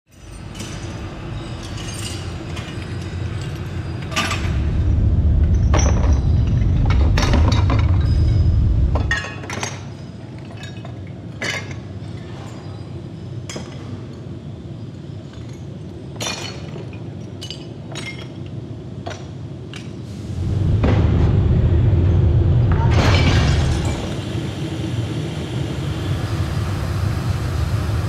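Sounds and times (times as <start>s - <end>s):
loud low rumble: 4.1s - 9.3s, 20.1s - 28.0s.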